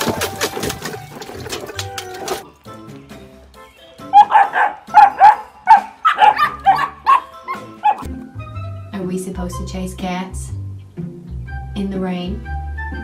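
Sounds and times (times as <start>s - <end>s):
background music: 0.0s - 13.0s
dog barking: 4.1s - 8.1s.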